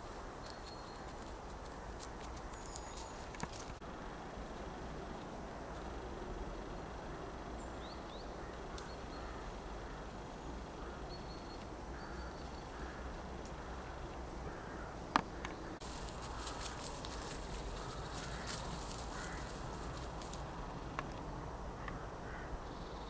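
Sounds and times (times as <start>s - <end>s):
steady outdoor hiss: 0.0s - 23.0s
distant crows cawing: 8.2s - 23.0s.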